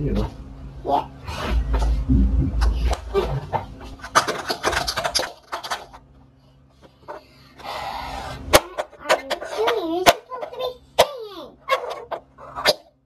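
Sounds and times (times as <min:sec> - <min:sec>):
plastic toys tapping on wooden floor: 0:04.0 - 0:06.0.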